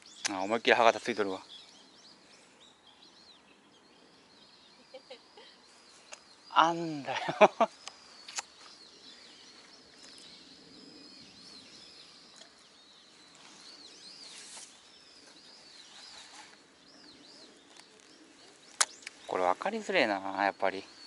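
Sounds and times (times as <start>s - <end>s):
small birds chirping: 0.0s - 21.0s.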